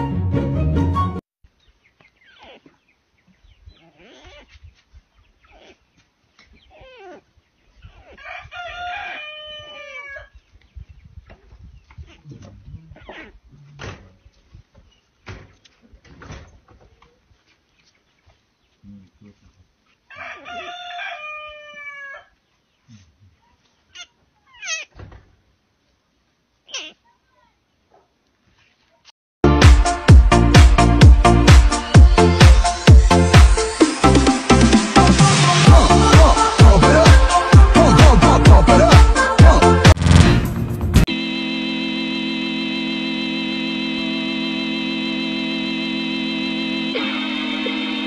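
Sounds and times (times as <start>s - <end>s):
music: 0.0s - 1.2s, 29.4s - 48.0s.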